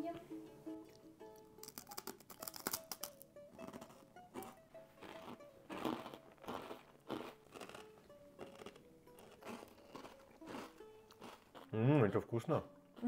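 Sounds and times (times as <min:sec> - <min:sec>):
plucked-string background music: 0:00.0 - 0:13.0
crunching of crisp bread: 0:01.6 - 0:11.7.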